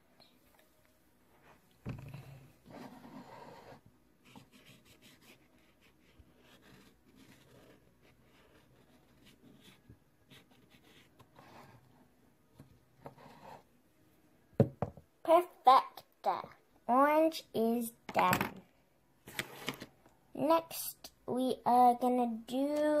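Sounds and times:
marker scratching on canvas: 1.3s - 13.7s.

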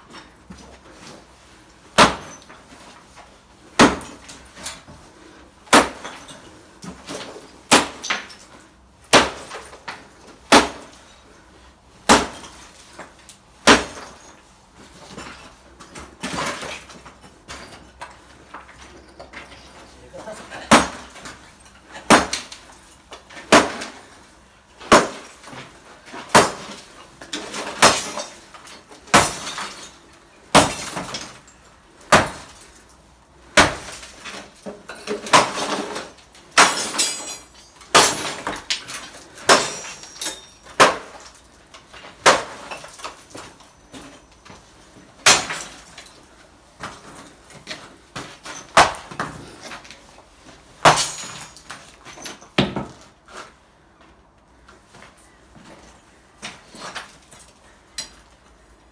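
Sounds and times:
sledgehammer smashing concrete: 1.9s - 2.6s, 3.7s - 4.8s, 5.6s - 8.4s, 9.0s - 11.0s, 12.0s - 14.4s, 15.0s - 17.8s, 20.2s - 24.2s, 24.8s - 32.7s, 33.5s - 43.6s, 45.2s - 46.2s, 46.8s - 49.9s, 50.8s - 53.0s
clatter of breaking pieces: 12.0s - 24.1s, 24.8s - 44.6s, 50.8s - 53.1s.

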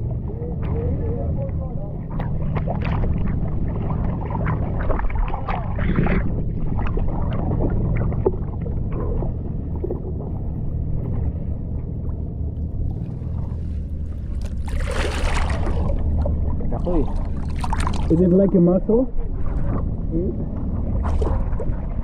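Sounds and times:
low rumble: 0.0s - 22.0s
seawater sloshing and splashing: 1.9s - 22.0s
rush of water: 2.1s - 9.4s, 12.1s - 22.0s.

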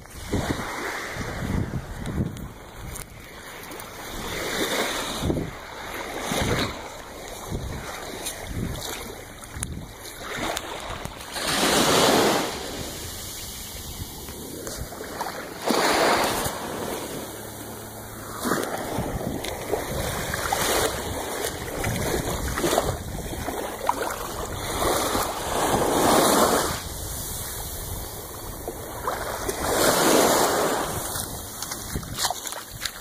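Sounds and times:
ocean surf washing on sand: 0.0s - 33.0s.

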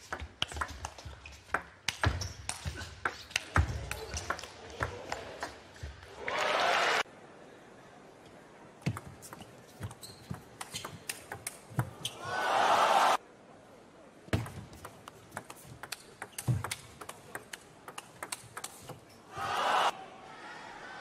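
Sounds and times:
crowd cheering: 6.1s - 7.1s, 12.2s - 13.2s, 19.3s - 21.0s
table tennis ball clicking: 14.4s - 19.0s.

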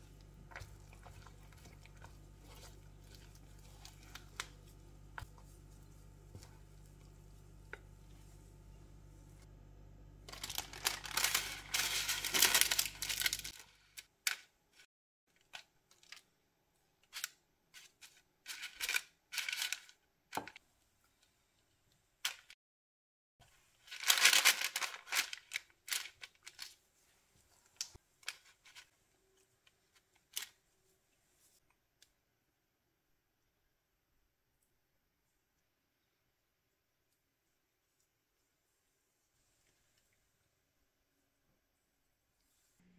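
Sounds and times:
paper rustling and crinkling: 10.3s - 14.5s, 17.2s - 20.6s, 23.6s - 28.9s.

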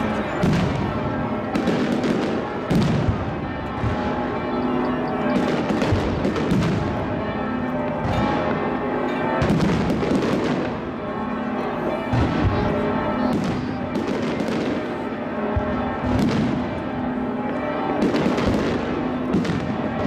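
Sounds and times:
fireworks crackling: 0.1s - 4.1s, 5.3s - 7.0s
sharp fireworks bangs: 0.2s - 4.4s, 5.2s - 7.2s, 9.4s - 10.9s, 12.1s - 12.6s, 13.2s - 16.8s, 17.5s - 20.0s.

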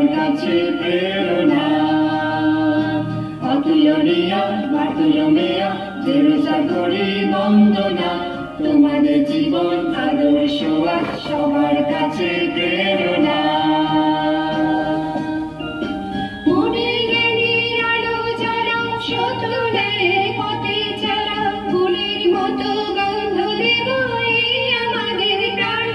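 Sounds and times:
group singing a hymn: 0.0s - 15.6s
electronic keyboard chords: 0.0s - 25.9s.

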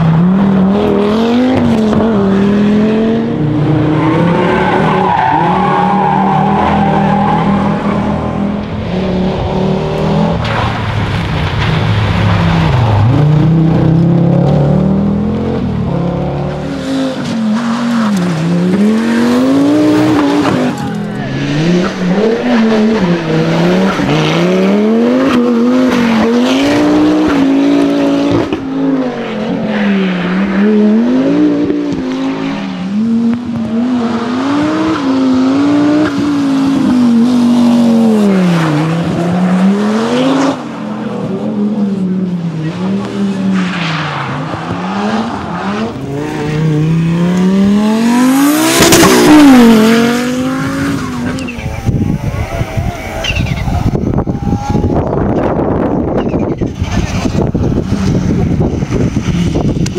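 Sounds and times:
rally car engines at full throttle: 0.0s - 59.9s.

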